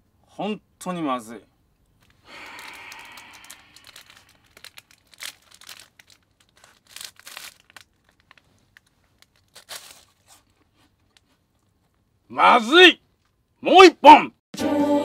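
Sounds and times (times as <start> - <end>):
plastic wrapper tearing and crinkling: 2.0 - 12.0.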